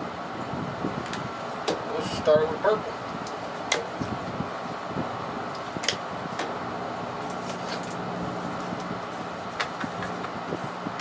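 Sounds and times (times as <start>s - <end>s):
steady mechanical hum: 0.0s - 11.0s.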